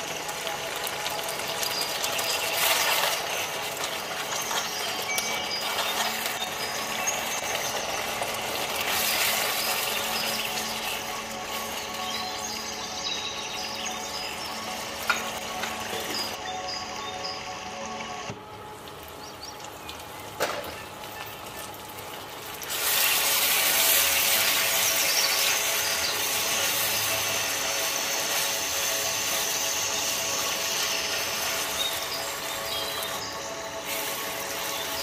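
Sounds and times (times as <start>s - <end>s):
food sizzling in a wok: 0.0s - 17.4s, 18.6s - 35.0s
steady hum: 0.0s - 21.1s, 21.8s - 35.0s
spatula stirring: 0.6s - 13.8s.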